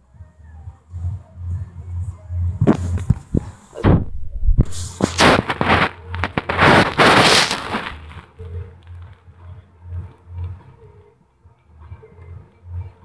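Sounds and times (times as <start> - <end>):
knocks and rubbing on microphone: 2.6 - 8.3.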